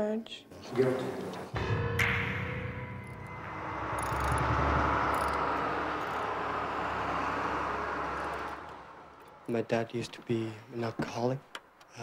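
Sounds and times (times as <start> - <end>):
vehicle engine and road rumble: 3.5 - 10.8.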